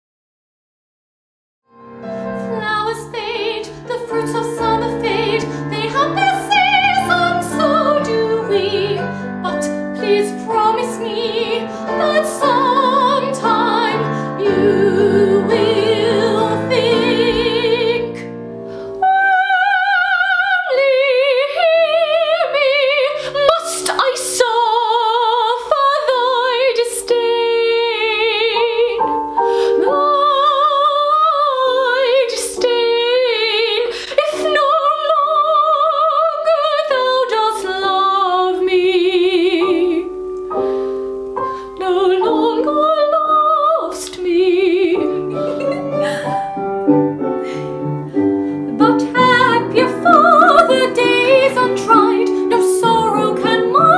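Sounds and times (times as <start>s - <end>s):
instrumental accompaniment: 1.7s - 19.0s, 43.9s - 53.9s
woman singing operatically: 2.4s - 18.3s, 19.0s - 29.1s, 29.7s - 40.1s, 41.8s - 45.4s, 48.7s - 53.9s.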